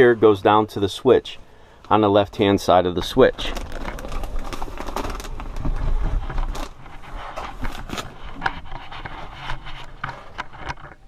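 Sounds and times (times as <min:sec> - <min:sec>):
knocks and scrapes on wood: 0:05.5 - 0:11.0.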